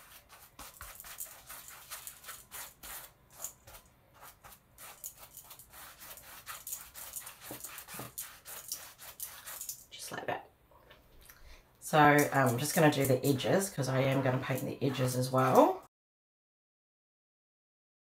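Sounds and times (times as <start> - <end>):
paintbrush scrubbing fabric: 0.0 - 9.9, 12.0 - 15.8.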